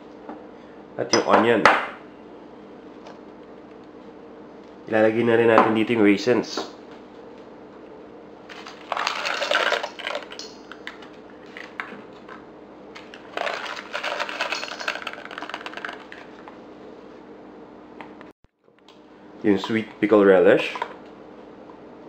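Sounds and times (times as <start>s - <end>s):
faint steady hum: 0.0s - 22.0s
raisins rattling into a bowl: 8.5s - 10.8s, 13.2s - 16.2s.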